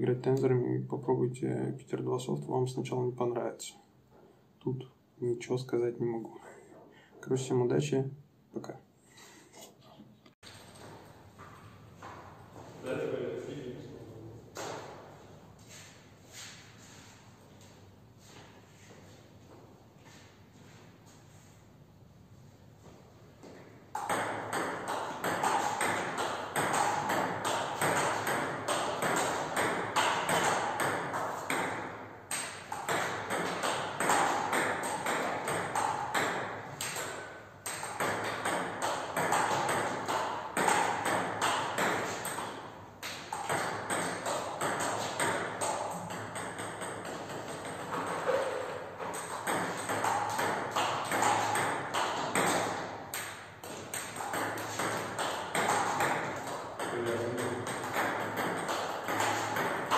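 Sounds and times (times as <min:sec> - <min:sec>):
table tennis balls hitting bats: 0:10.4 - 0:12.4, 0:14.5 - 0:15.1, 0:23.4 - 0:59.9
ball bouncing on table: 0:24.0 - 0:59.9.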